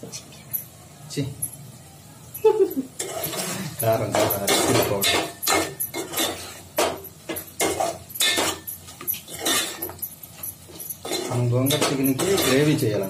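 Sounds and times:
metal spoon scraping a cooking pot: 3.0s - 13.0s.

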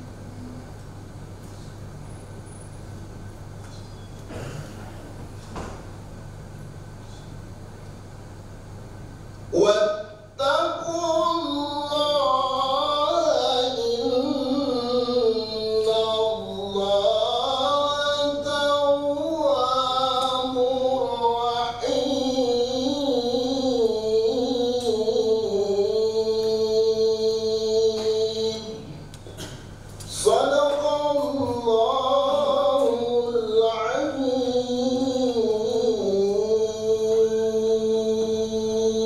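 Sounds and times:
man chanting verses: 9.5s - 29.1s, 30.0s - 39.0s.

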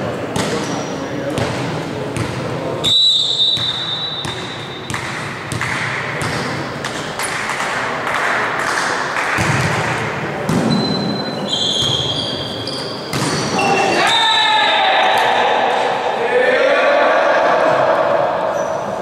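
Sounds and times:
referee whistle: 2.8s - 4.9s, 10.7s - 15.4s
ball hits: 3.6s - 10.9s, 13.1s - 13.6s.

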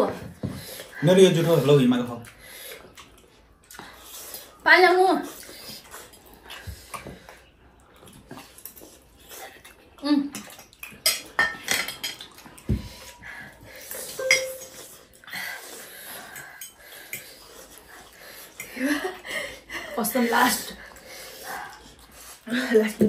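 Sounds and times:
forks clinking on plates: 14.2s - 14.8s.

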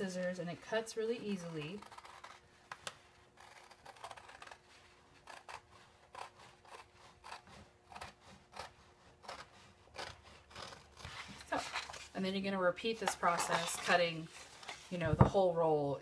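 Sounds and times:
scissors snipping fabric: 1.3s - 12.0s.

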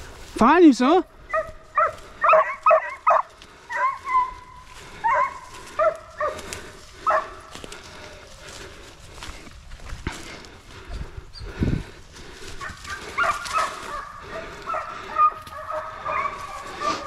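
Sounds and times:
hounds baying: 1.2s - 8.7s, 12.4s - 17.0s.

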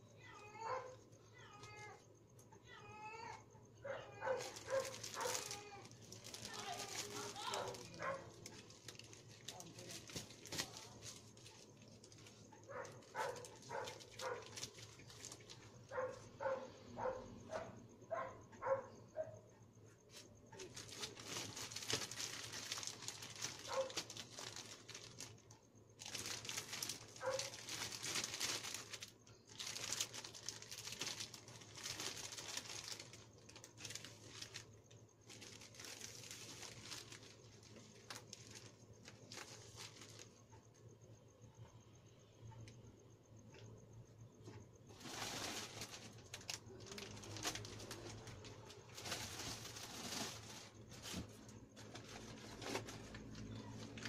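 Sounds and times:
plastic packets crinkling: 4.2s - 17.1s, 20.1s - 40.4s, 44.9s - 54.0s.

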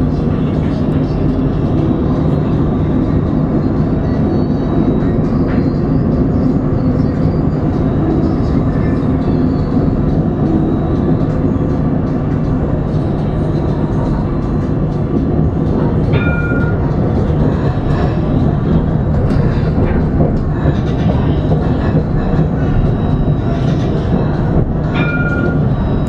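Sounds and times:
tram wheels rumbling on rails: 0.0s - 26.0s.

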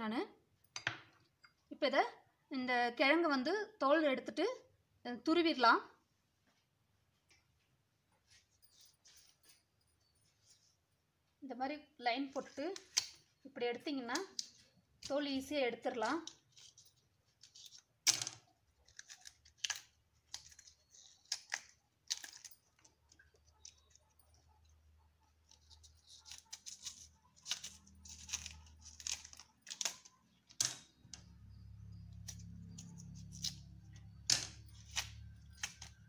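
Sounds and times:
knife scraping and tearing root skin: 18.8s - 24.1s, 25.4s - 30.3s, 32.0s - 36.0s.

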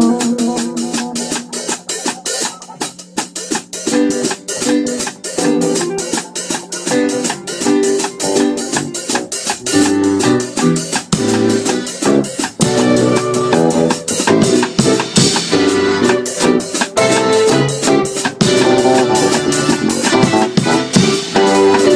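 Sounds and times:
drum kit: 0.0s - 21.9s
electric guitar: 0.0s - 21.9s
electric keyboard: 0.0s - 21.9s
quick cymbal beat: 0.0s - 21.9s.

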